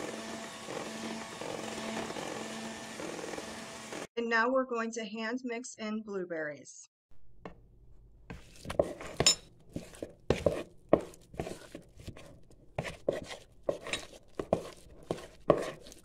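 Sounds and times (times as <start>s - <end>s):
utensil stirring and scraping bowl: 0.0s - 4.1s, 8.3s - 16.0s.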